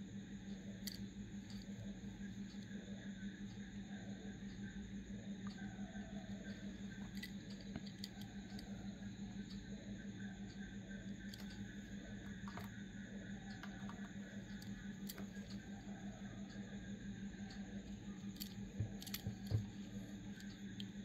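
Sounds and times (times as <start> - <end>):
low electrical hum: 0.0 - 21.0
fingers clicking on toy car: 18.3 - 20.9.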